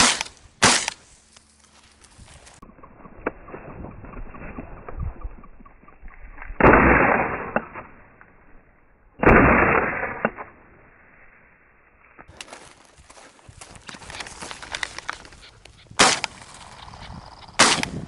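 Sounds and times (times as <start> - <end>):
shotgun shots with echo: 0.0 - 1.0, 16.0 - 16.4, 17.6 - 18.0.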